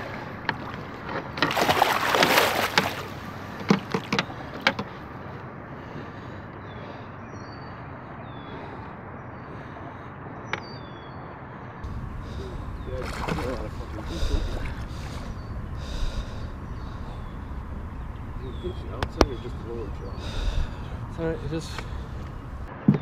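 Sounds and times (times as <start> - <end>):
water splashing and sloshing: 0.0 - 6.4, 11.8 - 23.0.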